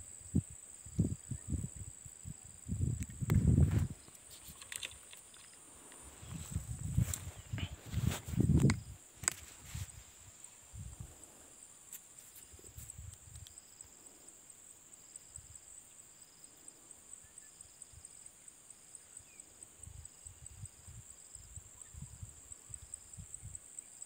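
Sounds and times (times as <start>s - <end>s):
insects chirring high-pitched: 0.0s - 24.0s
lower insect trill: 0.0s - 24.0s
low rumbles on microphone: 2.7s - 4.0s.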